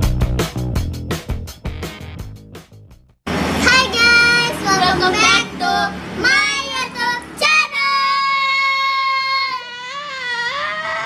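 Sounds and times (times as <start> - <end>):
intro music: 0.0 - 3.8
girls singing: 3.6 - 9.8.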